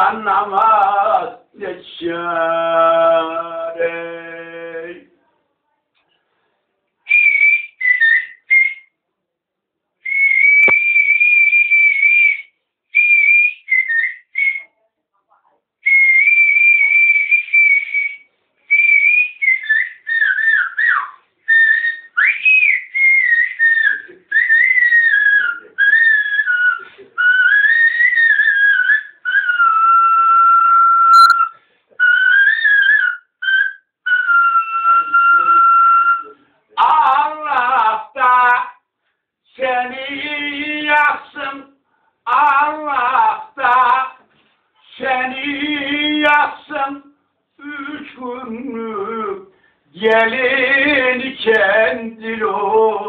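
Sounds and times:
man whistling a folk melody: 7.1s - 8.9s, 10.0s - 14.7s, 15.8s - 36.4s.

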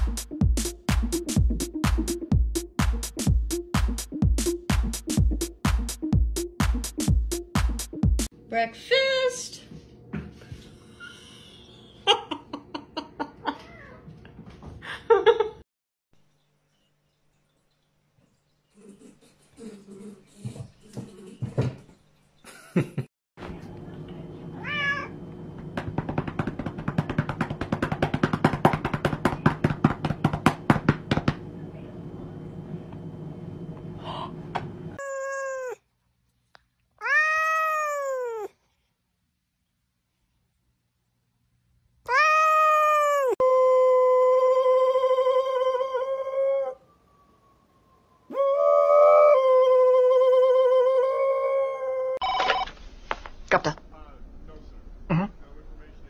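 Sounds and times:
hand rapidly patting cat fur: 25.8s - 31.4s
dog howling: 35.0s - 35.8s, 37.0s - 38.5s, 42.1s - 52.2s.

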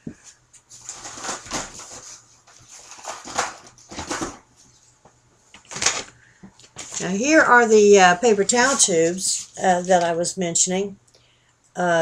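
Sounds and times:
rustling of craft supplies: 0.0s - 10.3s.

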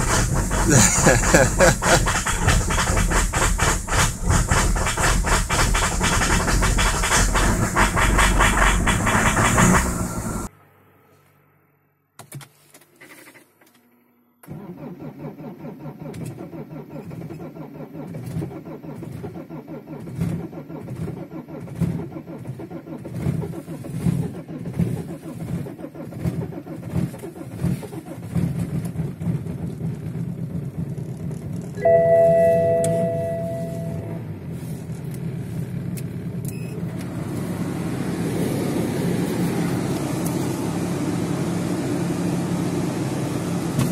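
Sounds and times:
diesel engine starting and idling: 0.0s - 11.8s, 13.9s - 43.9s
electronic warning tone: 31.8s - 34.2s.

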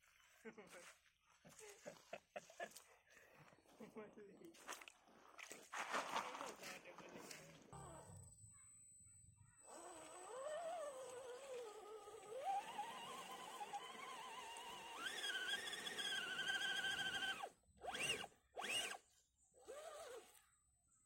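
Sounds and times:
electric motor whining: 9.6s - 19.0s, 19.6s - 20.4s.

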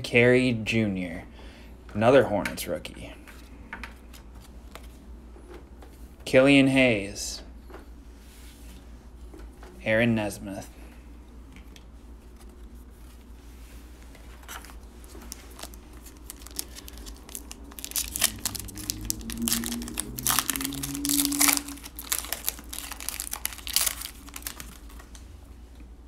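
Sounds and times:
foil wrapper tearing and crinkling: 15.2s - 25.2s.

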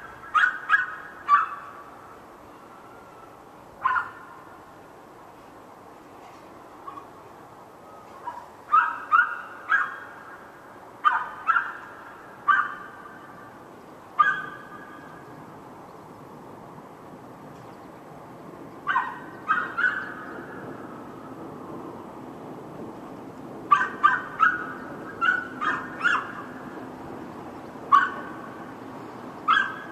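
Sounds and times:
dog barking: 0.4s - 1.7s, 3.8s - 4.3s, 8.2s - 10.0s, 11.0s - 11.8s, 12.5s - 13.0s, 14.2s - 14.7s, 18.9s - 20.2s, 23.7s - 26.3s, 27.9s - 28.3s, 29.5s - 29.9s.

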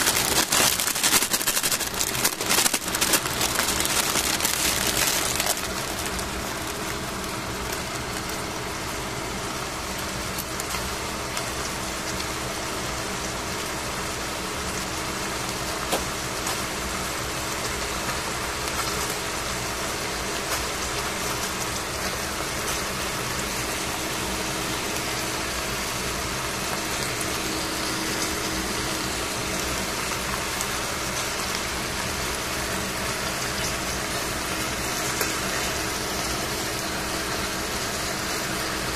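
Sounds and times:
whooshing machine hum: 0.0s - 10.0s, 21.1s - 38.9s.

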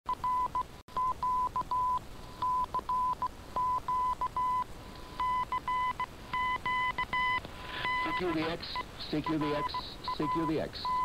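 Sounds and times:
faint radio hiss: 1.7s - 11.0s
morse code tone: 5.2s - 11.0s.

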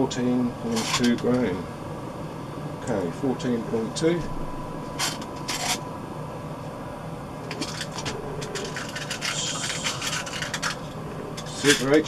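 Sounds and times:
metal pellets ticking and rattling: 7.6s - 10.8s.

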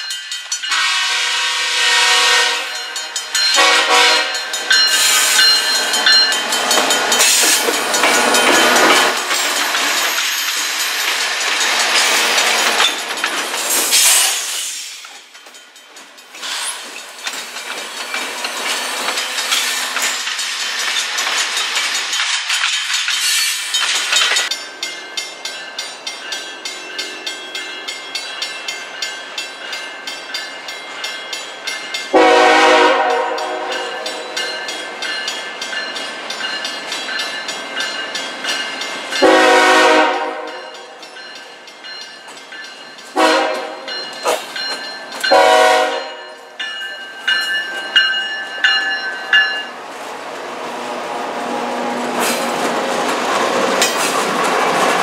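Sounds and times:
crossing bell ringing: 0.0s - 13.6s, 23.7s - 49.9s
diesel locomotives passing: 0.0s - 55.0s
locomotive horn blasts: 0.7s - 2.9s, 3.6s - 4.4s, 32.1s - 34.2s, 39.2s - 40.7s, 43.2s - 43.9s, 45.3s - 46.2s.

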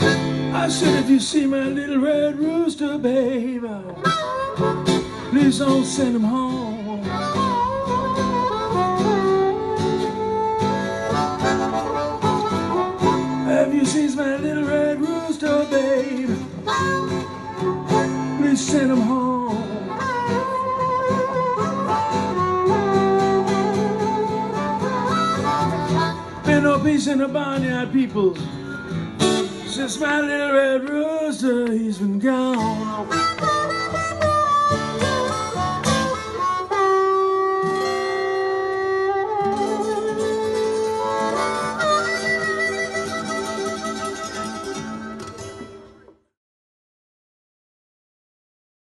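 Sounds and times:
blues harmonica: 0.0s - 30.0s, 32.5s - 46.1s
acoustic guitar strumming: 0.0s - 46.3s
long held melody notes: 32.8s - 45.4s.

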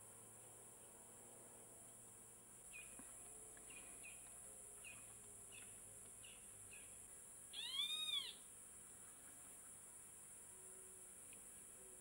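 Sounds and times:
short high bird chirps: 7.6s - 8.4s.

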